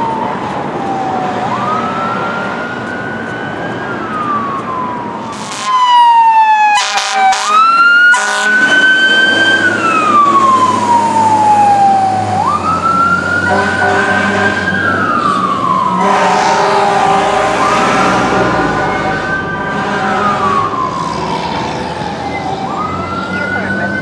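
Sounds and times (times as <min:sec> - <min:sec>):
fire engine siren wailing: 0:00.0 - 0:24.0
truck engine rumble: 0:00.0 - 0:24.0
air horn blasts: 0:05.3 - 0:05.9, 0:06.8 - 0:09.0, 0:13.5 - 0:14.7, 0:16.0 - 0:20.6.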